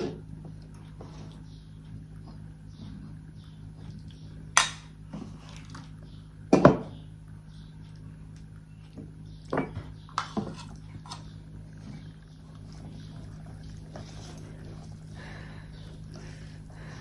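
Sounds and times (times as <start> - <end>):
soft eating sounds: 0.0 - 6.4, 7.3 - 17.0
low steady hum: 0.0 - 17.0.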